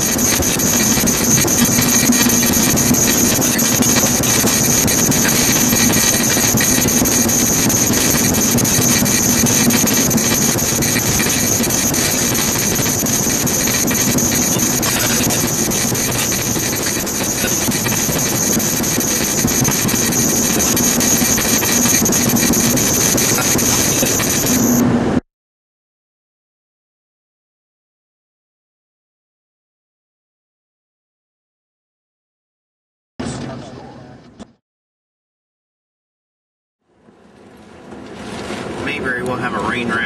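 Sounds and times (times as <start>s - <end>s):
constant low hum: 0.0s - 25.2s.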